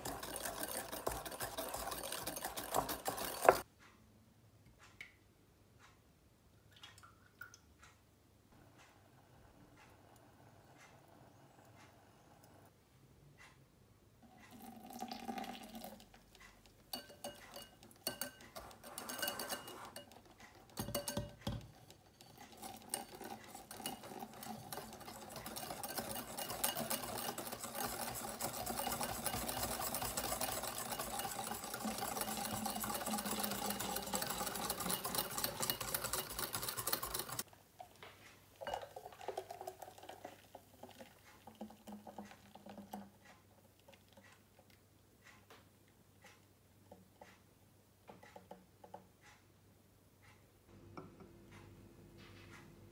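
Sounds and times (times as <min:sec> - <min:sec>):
clinks of whisk and bowl: 0:00.0 - 0:03.6, 0:16.4 - 0:37.5, 0:38.6 - 0:40.4
whisk beating in glass bowl: 0:00.0 - 0:03.7, 0:14.4 - 0:37.5, 0:38.6 - 0:44.4
liquid pouring: 0:14.3 - 0:16.4, 0:22.1 - 0:37.9, 0:38.6 - 0:43.2.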